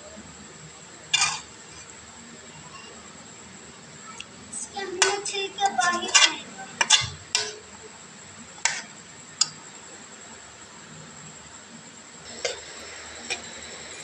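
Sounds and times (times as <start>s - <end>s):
faint steady hiss: 0.0s - 14.0s
spoon clinking against pot: 6.0s - 7.7s.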